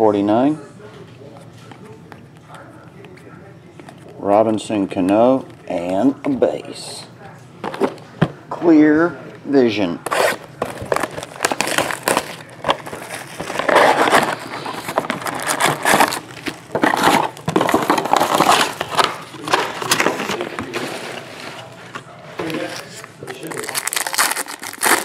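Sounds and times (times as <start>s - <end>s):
plastic shrink wrap tearing: 10.0s - 20.8s, 22.4s - 25.0s.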